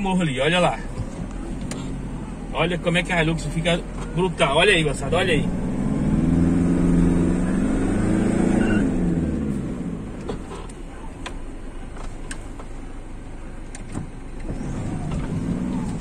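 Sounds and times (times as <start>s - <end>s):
diesel engine pulling hard: 0.0s - 16.0s.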